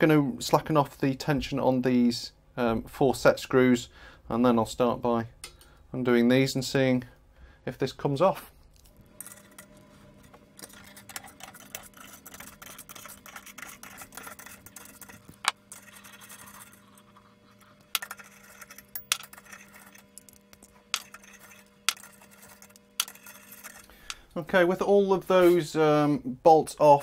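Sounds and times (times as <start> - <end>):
faint steady hum: 0.0 - 27.0
metal clinks and scrapes: 8.8 - 24.2.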